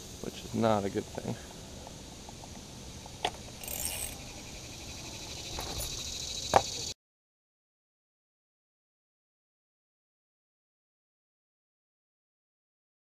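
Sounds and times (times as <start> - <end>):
insects trilling: 0.0 - 7.0.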